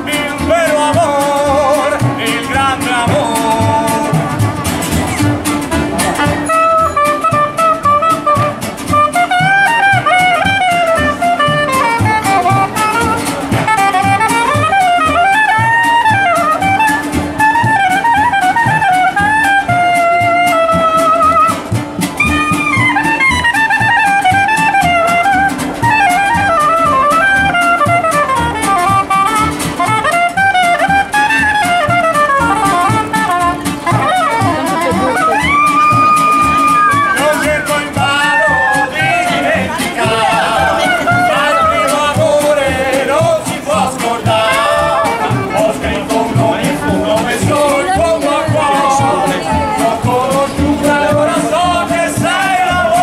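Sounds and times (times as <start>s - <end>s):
plucked washtub bass: 0.0s - 53.0s
strummed acoustic guitar: 0.0s - 53.0s
soprano saxophone melody: 5.8s - 42.1s, 44.3s - 46.2s.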